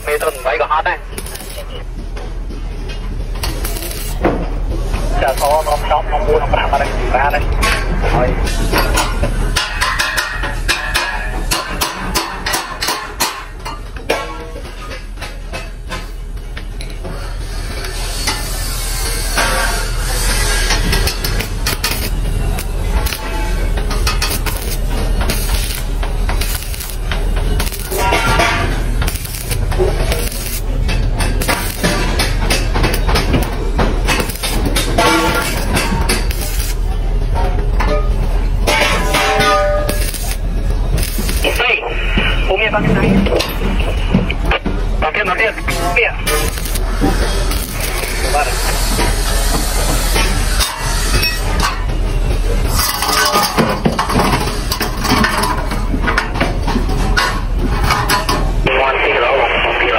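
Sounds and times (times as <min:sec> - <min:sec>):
welding arc crackling: 0:00.0 - 0:07.2, 0:14.9 - 0:56.0
loud background din: 0:00.0 - 0:59.9
low hum: 0:13.6 - 0:58.8.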